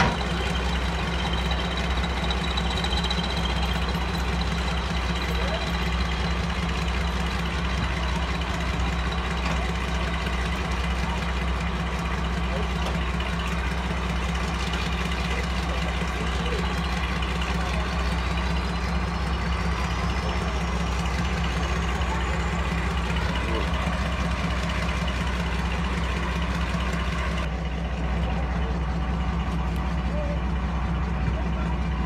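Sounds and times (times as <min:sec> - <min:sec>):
diesel locomotive idling: 0:00.0 - 0:32.0.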